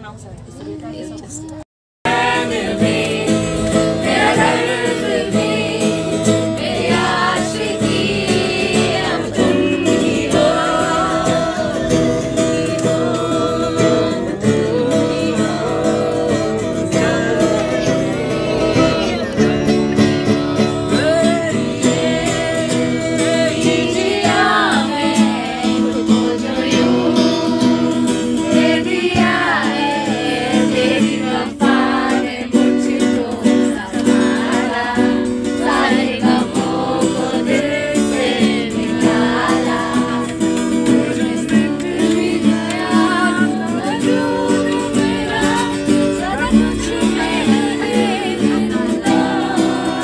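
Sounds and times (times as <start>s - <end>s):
acoustic guitar strumming: 2.1s - 50.0s
person singing: 6.8s - 34.9s, 40.9s - 50.0s.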